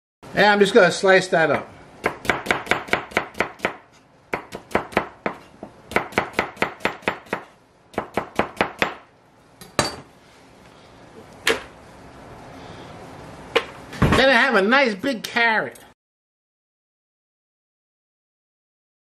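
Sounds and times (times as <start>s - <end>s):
knife slicing onion on board: 2.0s - 9.0s.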